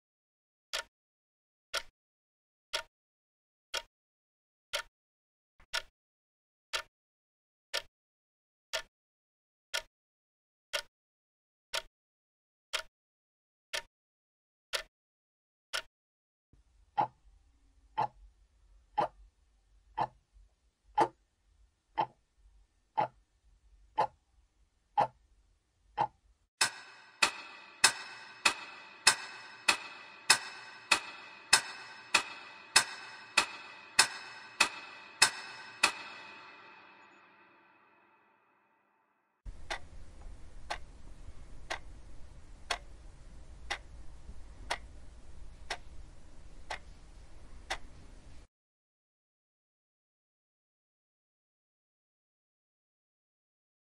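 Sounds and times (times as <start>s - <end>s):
clock ticking: 1.7s - 1.9s, 5.7s - 5.9s, 12.7s - 12.9s, 17.0s - 17.2s, 18.0s - 18.2s, 19.0s - 19.2s, 19.9s - 20.2s, 21.0s - 21.2s, 22.0s - 22.2s, 22.9s - 23.2s, 24.0s - 24.2s, 25.0s - 25.2s, 26.0s - 37.5s, 39.5s - 40.9s, 41.6s - 42.0s, 42.6s - 46.8s
steady low hum: 39.5s - 48.5s.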